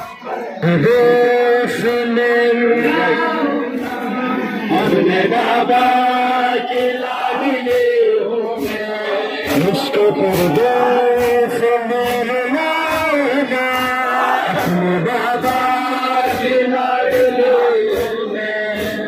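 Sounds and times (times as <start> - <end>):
crowd of men chanting: 0.0 - 19.0
hands slapping chests: 8.6 - 14.8.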